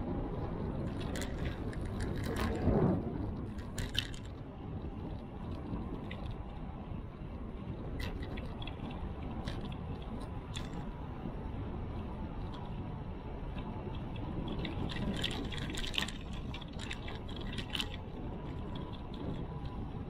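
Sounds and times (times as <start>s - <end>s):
bicycle riding rumble: 0.0s - 20.0s
bike clicks and rattles: 0.8s - 4.4s, 8.0s - 10.9s, 13.6s - 19.9s.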